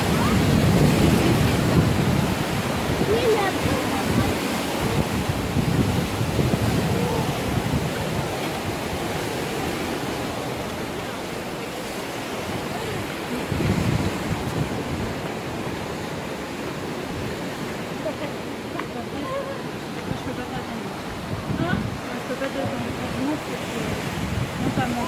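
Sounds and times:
surf breaking on rocks: 0.0s - 25.0s
wind buffeting microphone: 0.0s - 25.0s.

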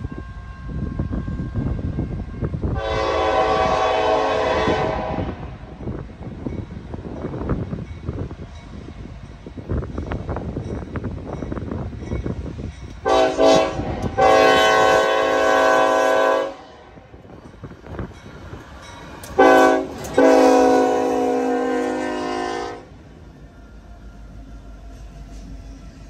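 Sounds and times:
rumble of passing train: 0.0s - 26.0s
locomotive air horn: 2.7s - 5.7s, 13.0s - 17.0s, 19.4s - 23.0s.

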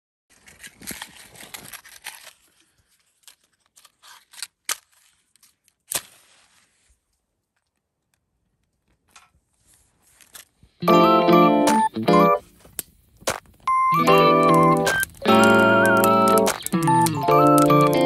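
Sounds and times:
match strike scraping: 5.9s - 7.0s, 12.5s - 18.0s
matchbox rattling and clicking: 12.7s - 18.0s.

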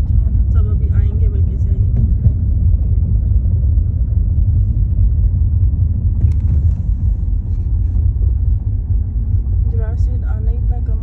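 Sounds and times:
car interior rumble: 0.0s - 11.0s.

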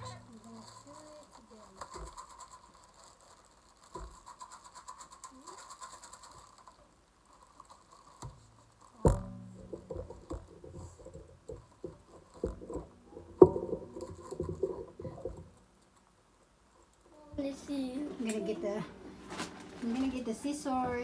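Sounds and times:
plastic bag rustling: 0.0s - 9.0s, 18.2s - 21.0s
tripod knocking and rattling: 9.0s - 16.0s.

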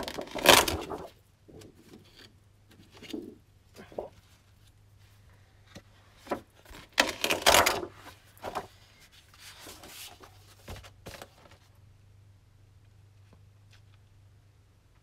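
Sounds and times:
paper sheets rustling and flapping: 0.0s - 4.6s, 5.7s - 11.7s.

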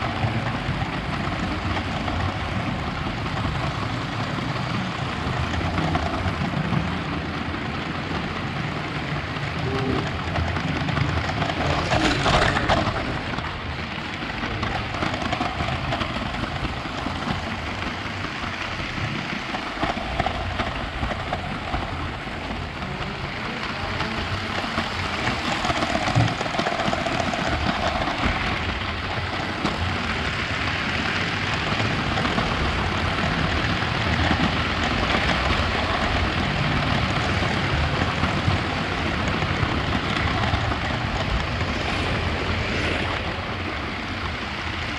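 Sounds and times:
toy train wheels rattling on rails: 8.1s - 42.2s.

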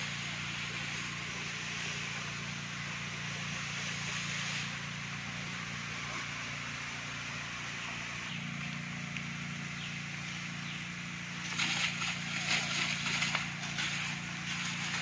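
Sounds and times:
spray jet hissing: 0.0s - 8.3s, 11.2s - 15.0s
power sprayer motor humming: 0.0s - 15.0s.

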